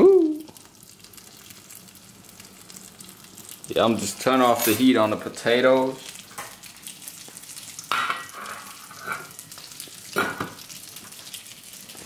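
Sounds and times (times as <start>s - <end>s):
fish sticks sizzling in a pan: 0.0s - 12.0s
cookware clanking: 7.9s - 9.3s.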